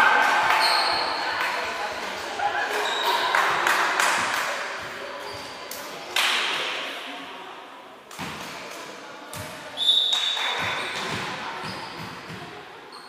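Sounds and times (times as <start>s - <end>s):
referee's whistle: 9.8s - 10.4s.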